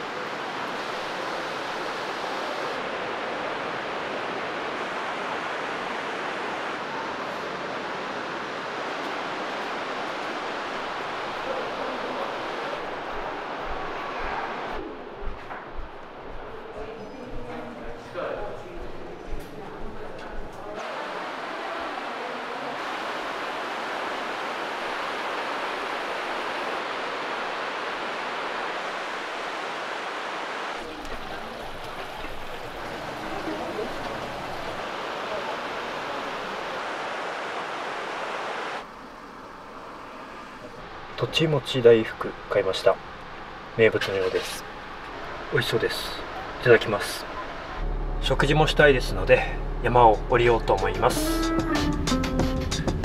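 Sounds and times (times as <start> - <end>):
rushing river water: 0.0 - 15.2, 20.7 - 47.8.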